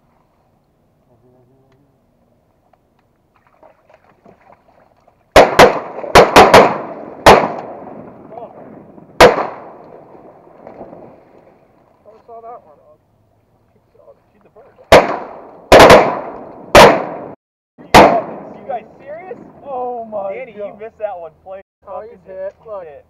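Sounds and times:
shotgun shots with echo: 0:05.3 - 0:08.0, 0:09.2 - 0:09.8, 0:14.9 - 0:18.6.

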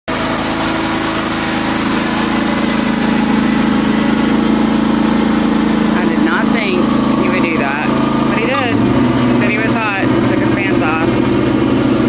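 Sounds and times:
lawn mower engine running: 0:00.0 - 0:12.0.

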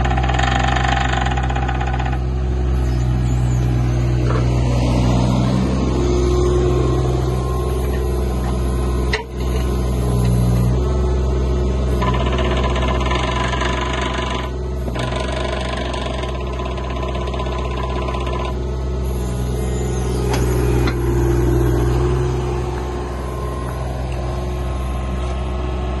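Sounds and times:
diesel engine running: 0:00.0 - 0:26.0
higher whine: 0:02.5 - 0:10.7, 0:19.0 - 0:26.0.

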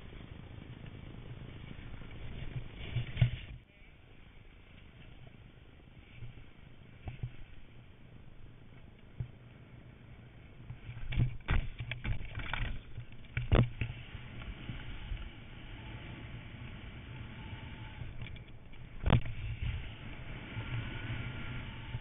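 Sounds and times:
skis scraping over snow: 0:00.0 - 0:03.6, 0:09.6 - 0:22.0
wind on microphone: 0:10.6 - 0:22.0
skis landing thuds: 0:10.8 - 0:14.0.

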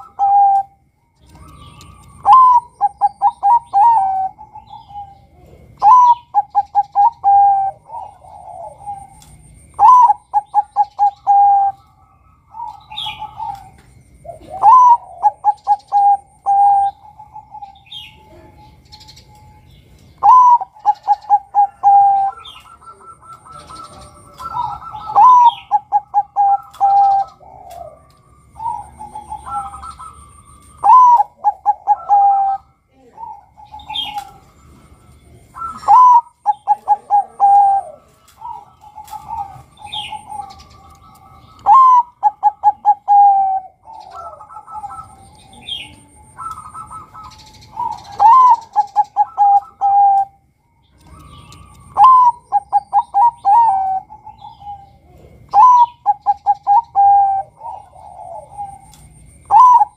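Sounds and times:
birds chirping faintly: 0:00.0 - 0:59.9
dove cooing song: 0:00.0 - 0:59.9.

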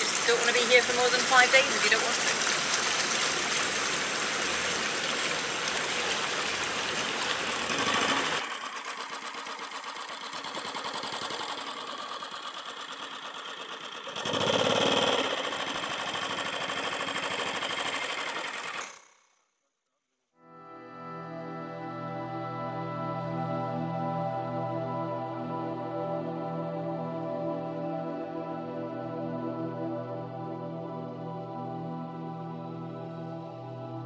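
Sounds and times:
rushing water: 0:00.0 - 0:08.5
small engine pulsing: 0:00.0 - 0:19.5.

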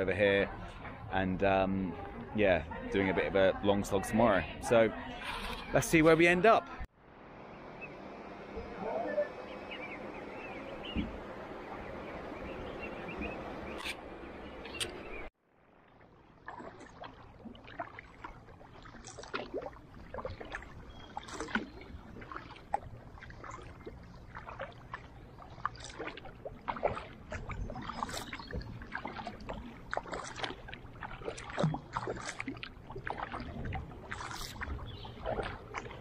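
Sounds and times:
paddle splashing in water: 0:08.8 - 0:36.0.

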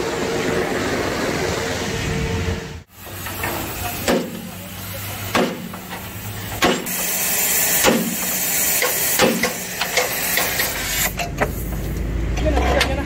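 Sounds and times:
steady hiss: 0:02.8 - 0:12.0
sharp metal knocks: 0:05.3 - 0:07.0, 0:07.8 - 0:10.6.

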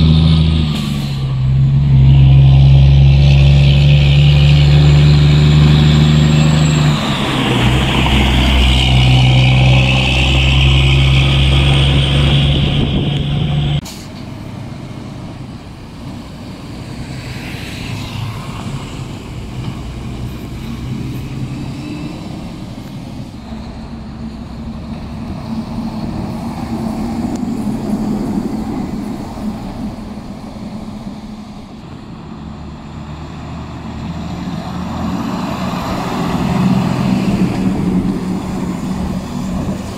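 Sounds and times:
diesel truck engine running: 0:00.0 - 0:17.0
distant truck engines: 0:00.0 - 0:39.9
traffic noise: 0:00.0 - 0:39.9.

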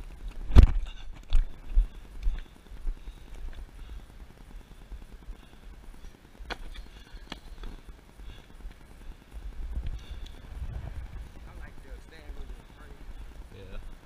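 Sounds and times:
low wind rumble on microphone: 0:08.6 - 0:14.0.

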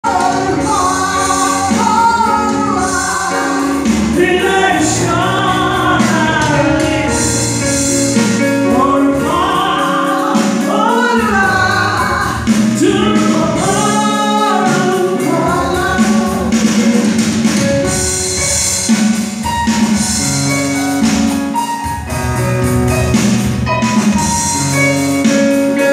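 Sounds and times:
gospel song sung over loudspeakers: 0:00.0 - 0:19.4.

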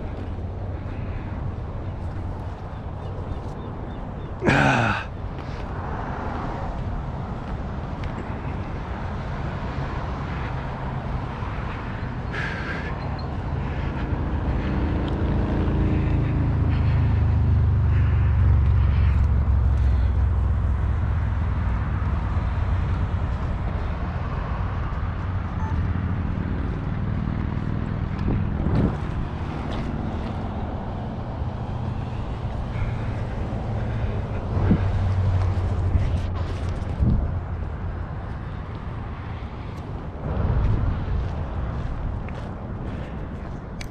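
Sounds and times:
distant motor engine drone: 0:09.8 - 0:43.9.

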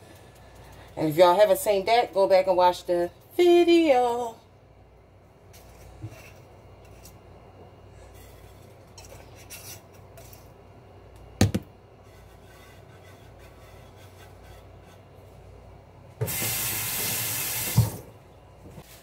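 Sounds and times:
hard object knocking on counter: 0:11.4 - 0:11.7
kitchen faucet running: 0:16.2 - 0:18.1.

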